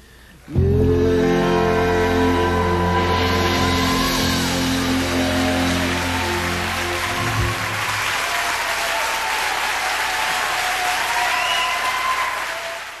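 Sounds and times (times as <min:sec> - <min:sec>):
live band closing chord: 0:00.5 - 0:08.5
audience cheering: 0:00.8 - 0:13.0
audience applauding: 0:02.1 - 0:13.0.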